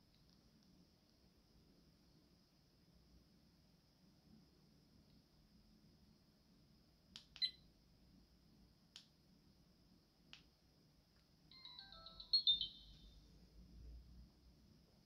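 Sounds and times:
falling electronic beep melody: 0:11.5 - 0:13.2.

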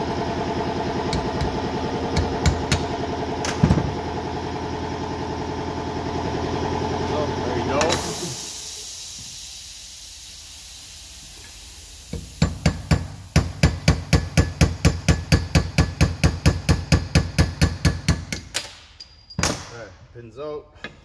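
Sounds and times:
hammer striking metal: 0:01.1 - 0:03.8.

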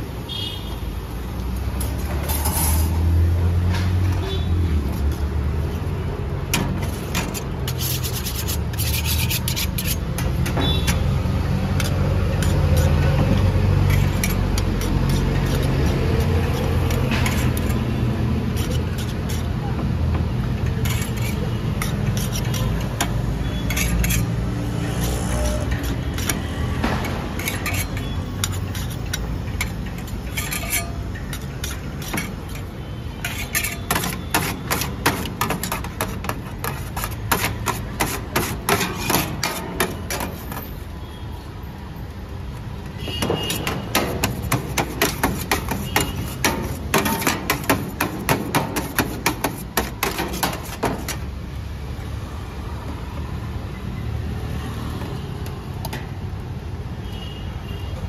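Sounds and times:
metal utensils striking steel tray: 0:43.3 - 0:51.2.

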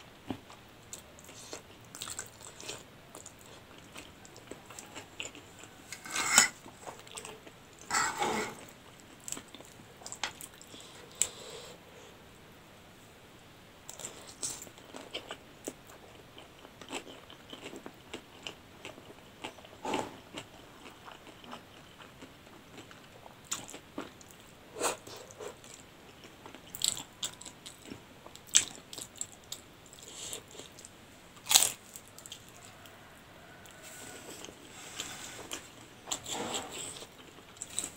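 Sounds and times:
chewing: 0:00.3 - 0:11.4, 0:13.9 - 0:37.9.

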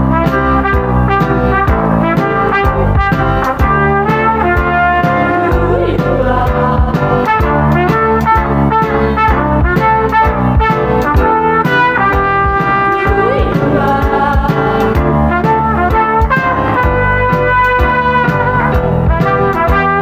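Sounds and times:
brass band instrumental: 0:00.0 - 0:20.0
steady beat: 0:00.0 - 0:20.0.

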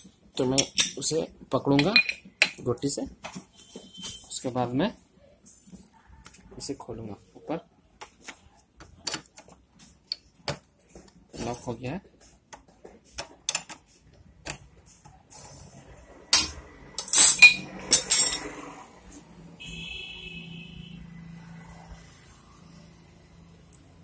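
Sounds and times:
metal tools clinking: 0:16.4 - 0:18.6.

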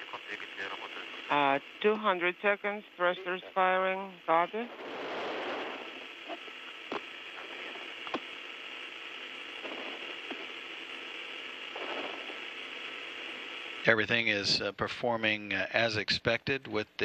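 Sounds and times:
radio channel hiss: 0:00.0 - 0:17.0
sharp radio clicks: 0:06.2 - 0:08.3, 0:09.6 - 0:10.6.

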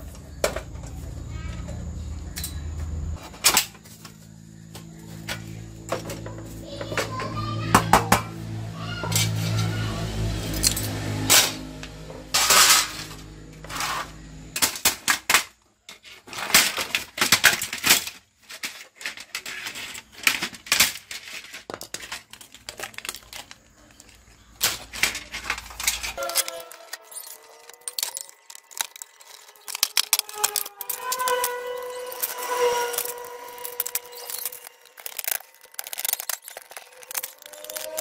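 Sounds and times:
metal and plastic parts clanking: 0:12.3 - 0:38.0.

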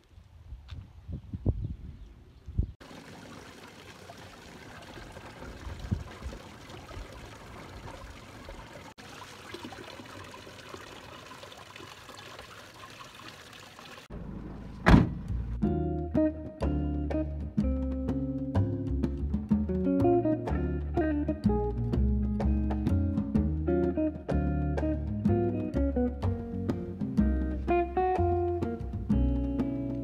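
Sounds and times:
water pouring into containers: 0:02.8 - 0:14.1
loud thump: 0:14.8 - 0:15.4.

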